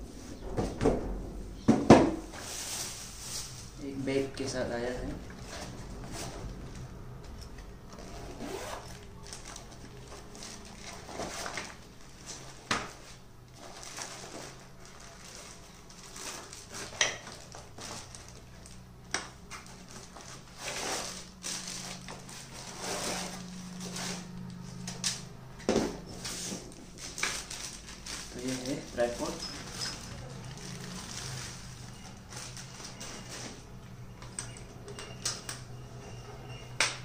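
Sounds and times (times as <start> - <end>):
plastic crinkling: 7.9 - 25.1, 26.2 - 33.6
bag unzipping: 8.0 - 9.0.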